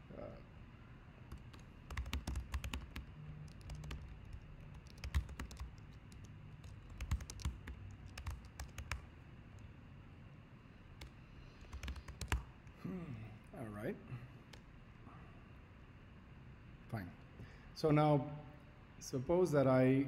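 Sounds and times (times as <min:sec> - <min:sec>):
typing on computer keyboard: 0:01.3 - 0:09.1, 0:11.0 - 0:12.5.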